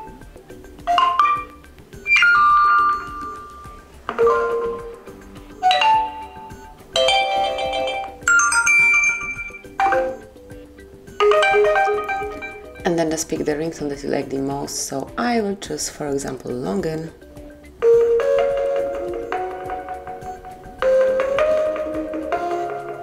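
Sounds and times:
phone alert chimes and jingles: 0.9s - 5.0s, 5.6s - 10.4s, 11.1s - 12.9s.

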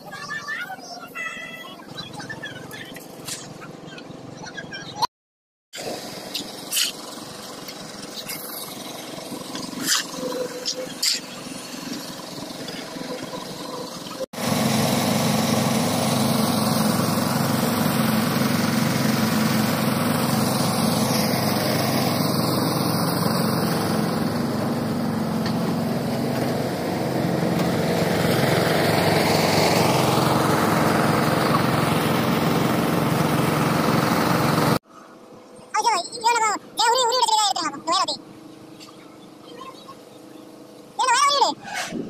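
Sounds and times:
small engine running: 5.8s - 35.3s.

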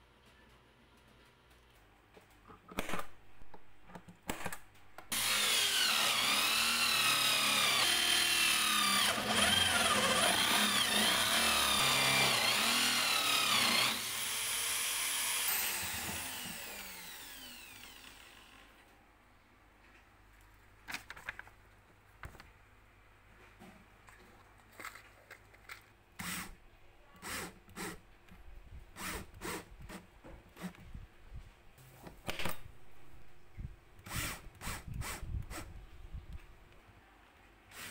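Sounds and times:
electric drill boring into board: 5.1s - 18.8s.

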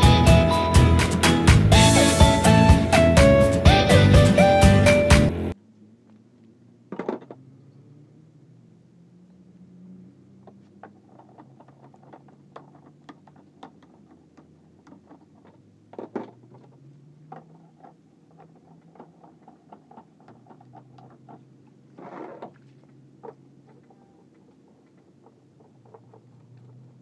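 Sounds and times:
plastic pipe clicks and knocks: 10.4s - 22.6s
pipe scraping: 10.9s - 27.0s.

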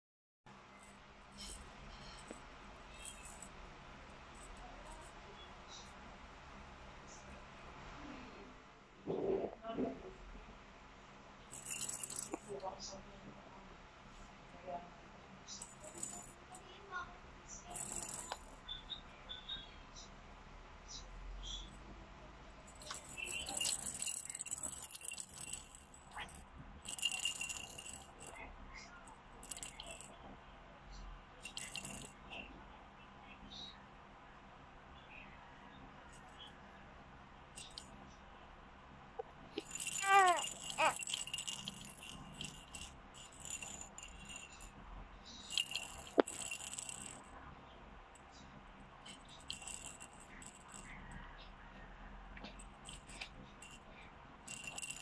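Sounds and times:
plastic rattle shaking: 1.4s - 3.6s, 11.5s - 12.7s, 15.5s - 16.8s, 17.5s - 18.8s, 22.7s - 30.2s, 31.4s - 32.4s, 37.6s - 38.0s, 39.6s - 47.3s, 49.0s - 51.2s, 52.5s - 55.0s.

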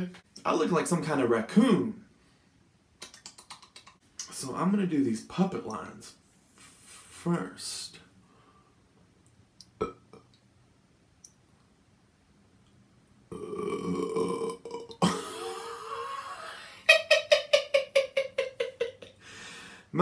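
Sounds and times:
man burping: 9.8s - 10.3s, 13.3s - 16.6s.

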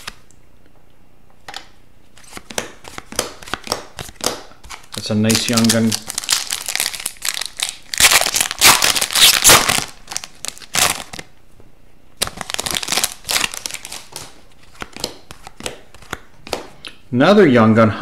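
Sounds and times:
foil wrapper crinkling and tearing: 3.4s - 11.3s, 12.2s - 15.6s.

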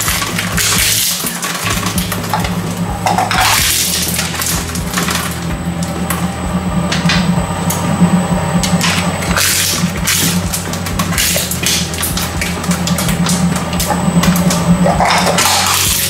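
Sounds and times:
steel cutters clinking and rattling: 0.0s - 6.2s, 8.6s - 16.0s
shredder humming: 0.0s - 16.0s.

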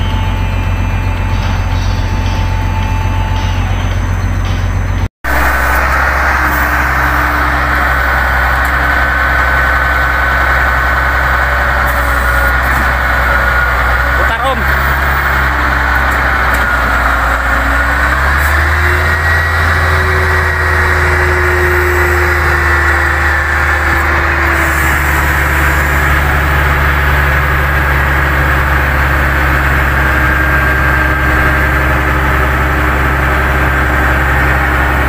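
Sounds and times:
thin high whine: 0.0s - 34.7s
diesel engine idling: 0.0s - 35.0s.

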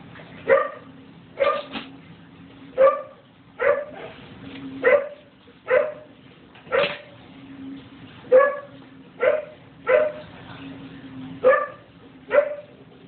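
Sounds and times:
dog barking: 0.5s - 1.8s, 2.8s - 4.2s, 4.8s - 6.1s, 6.7s - 7.1s, 8.3s - 10.3s, 11.4s - 12.8s.

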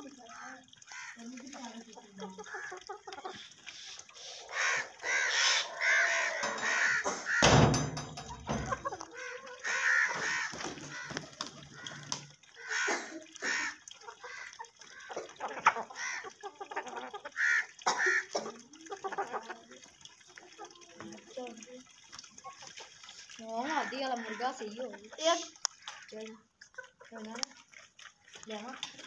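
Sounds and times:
parakeet calling: 4.4s - 7.5s.

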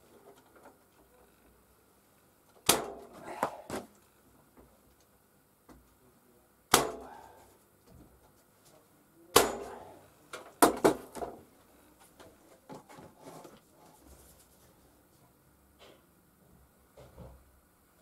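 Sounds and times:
nail gun firing: 2.6s - 3.0s, 6.7s - 7.1s, 9.4s - 9.7s.

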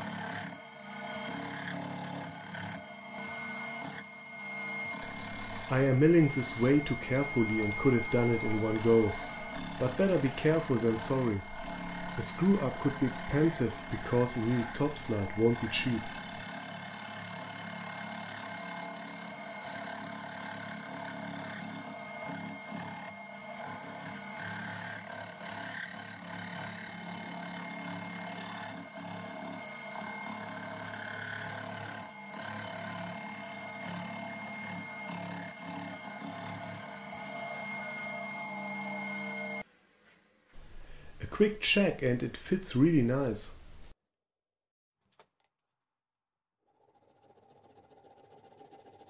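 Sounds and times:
milling machine motor hum: 0.0s - 39.6s
high whine: 3.2s - 16.4s, 33.2s - 39.6s
end mill rasping metal: 4.8s - 16.5s.

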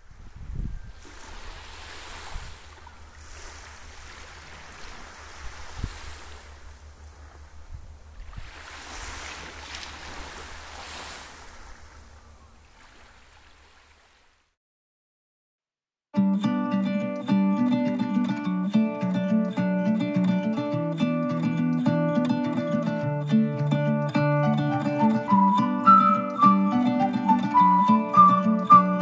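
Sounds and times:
sea waves washing ashore: 0.0s - 14.4s.

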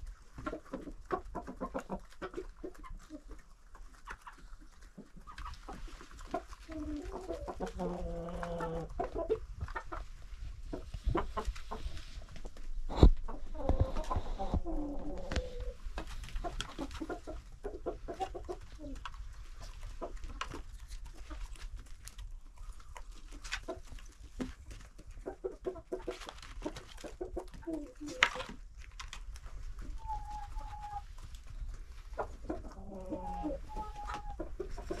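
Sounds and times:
hens clucking: 0.0s - 35.0s
long held chicken call: 32.8s - 34.5s.

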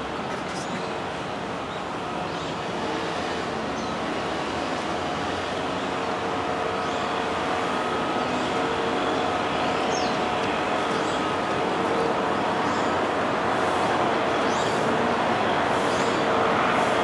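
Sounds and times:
distant road traffic: 0.0s - 17.0s.

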